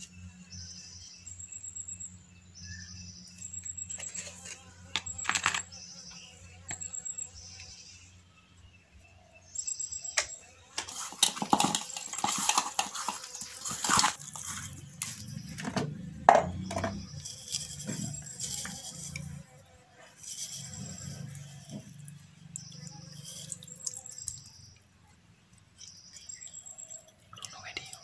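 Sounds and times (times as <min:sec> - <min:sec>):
hands squishing fish in bowl: 0:10.9 - 0:15.8
knocks against metal bowl: 0:16.3 - 0:17.0.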